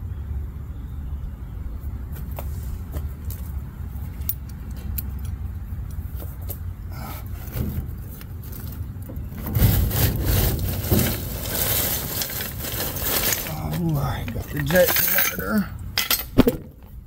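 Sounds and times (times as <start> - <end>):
steady low rumble: 0.0 - 17.0
metal part scraping and rattling: 7.3 - 16.4.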